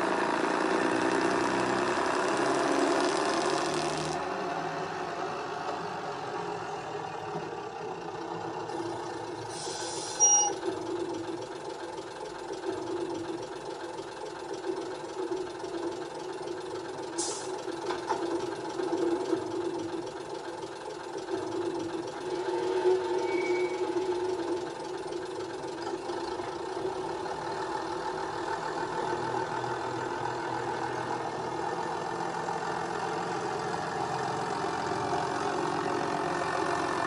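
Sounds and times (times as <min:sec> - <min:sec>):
diesel engine drone: 0:00.0 - 0:37.0
short hiss: 0:09.5 - 0:10.2.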